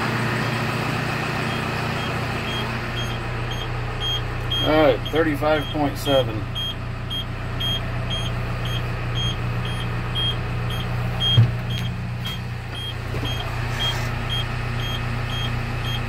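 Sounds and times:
crane engine idling: 0.0s - 16.0s
thump: 11.3s - 11.7s.

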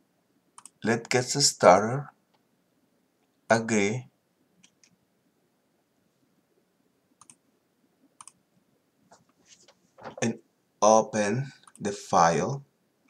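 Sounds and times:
computer mouse clicks: 0.6s - 0.8s, 4.6s - 5.0s, 7.2s - 7.4s, 8.2s - 8.4s, 11.6s - 11.9s.

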